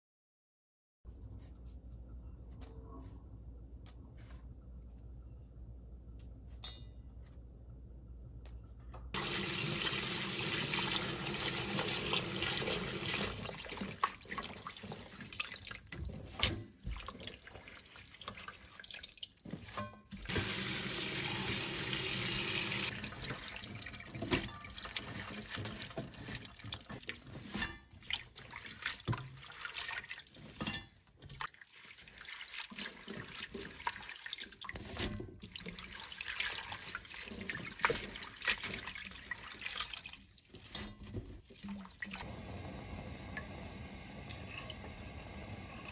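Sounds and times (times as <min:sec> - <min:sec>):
hands swishing greens in water: 0:23.2 - 0:42.2.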